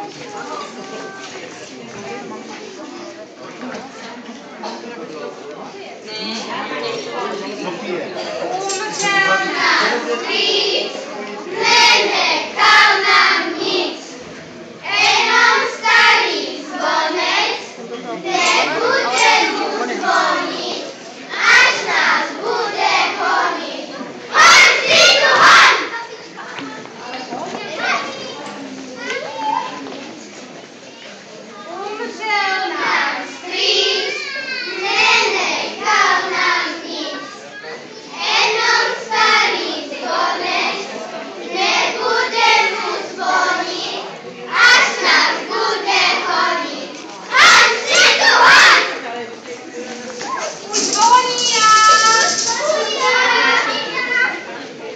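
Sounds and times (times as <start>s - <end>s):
children singing: 8.5s - 14.2s, 14.8s - 26.0s, 32.3s - 37.4s, 38.2s - 49.0s, 50.2s - 54.3s.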